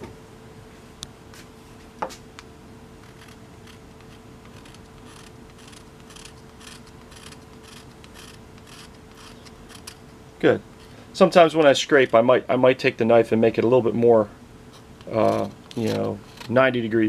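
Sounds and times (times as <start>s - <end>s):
knife blade scraping wood: 3.0s - 10.1s, 14.8s - 16.6s.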